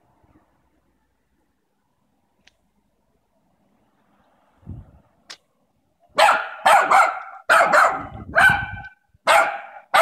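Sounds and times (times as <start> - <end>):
small dog barking: 6.2 - 10.0.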